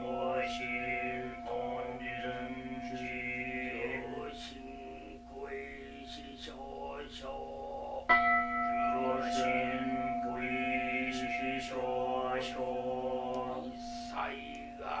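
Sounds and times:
voices chanting on one pitch: 0.0 - 8.2, 8.9 - 15.0
bell ringing: 8.1 - 15.0.

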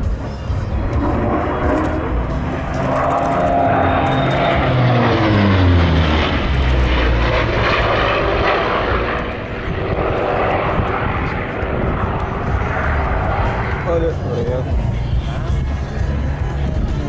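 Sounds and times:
propeller plane flying past: 0.0 - 17.0.

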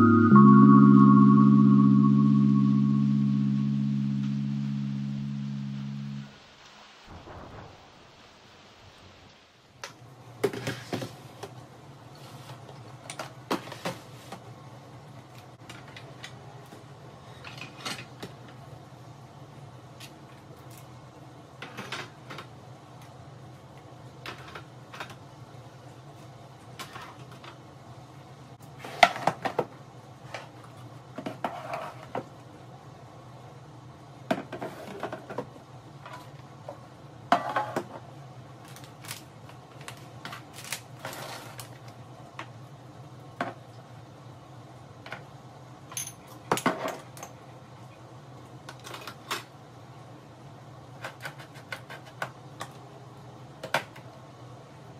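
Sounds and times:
steady low hum: 0.0 - 6.5.

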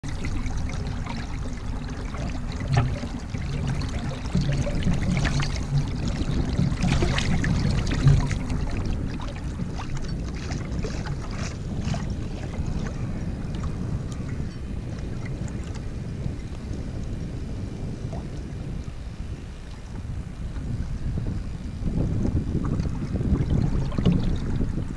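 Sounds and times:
choppy water lapping and splashing: 0.0 - 24.9
wind rumbling on microphone: 0.0 - 24.9.

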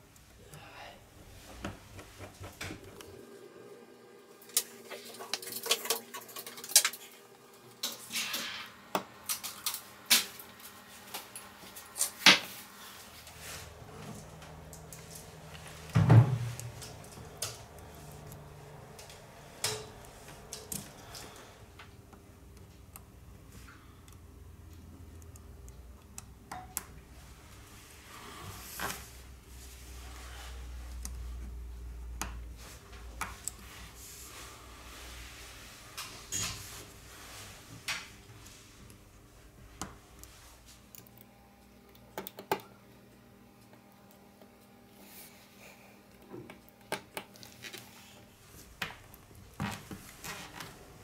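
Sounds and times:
small tools clicking and tapping: 19.0 - 23.1, 40.9 - 42.7.

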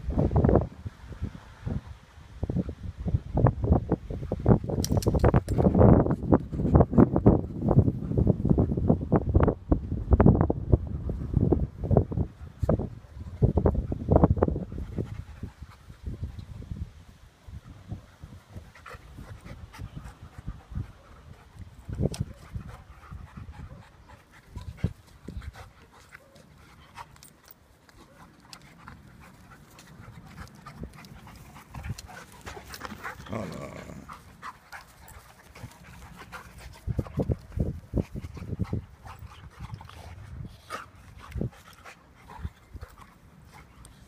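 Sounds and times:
dogs panting: 12.3 - 16.6, 17.6 - 44.0
dogs scuffling and wrestling: 17.6 - 44.0.

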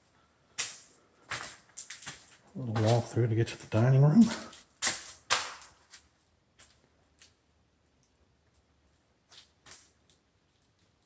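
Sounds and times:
soft footstep clicks: 0.6 - 3.2.

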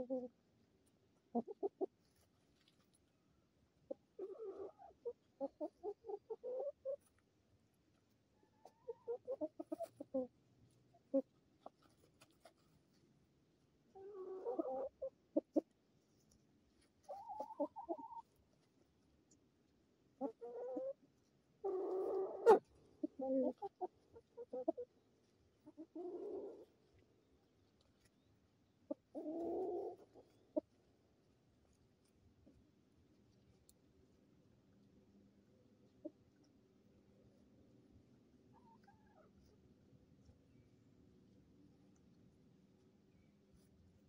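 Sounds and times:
chickens clucking: 0.0 - 0.4, 1.2 - 2.3, 3.9 - 7.2, 8.4 - 10.3, 10.9 - 12.6, 13.9 - 15.8, 17.0 - 18.4, 20.1 - 31.2, 35.5 - 37.0, 38.1 - 39.8.

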